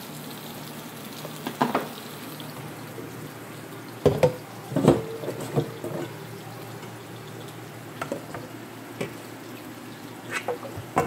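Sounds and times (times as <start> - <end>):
kitchen clatter at sink: 1.2 - 2.0, 4.0 - 6.2, 8.0 - 9.2, 10.3 - 11.0.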